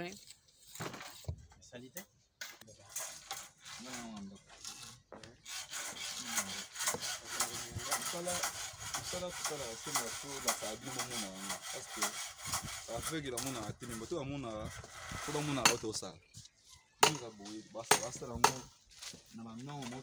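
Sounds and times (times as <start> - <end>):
trowel scraping mortar: 0.0 - 1.4, 2.8 - 15.9.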